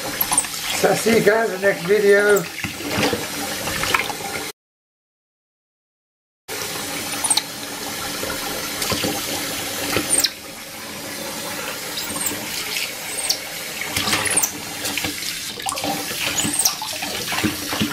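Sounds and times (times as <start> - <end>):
tap running into metal sink: 7.1 - 10.4
high-pitched squeaks: 10.1 - 10.4, 13.1 - 13.4, 14.2 - 14.5, 16.3 - 16.9.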